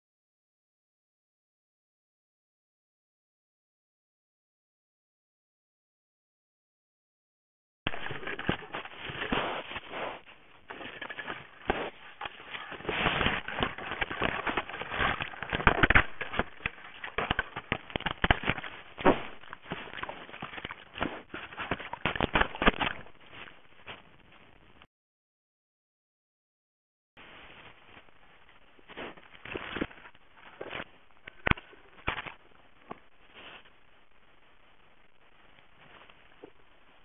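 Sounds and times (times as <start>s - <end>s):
scraping and rustling on camera: 7.9s - 24.6s, 27.2s - 33.9s.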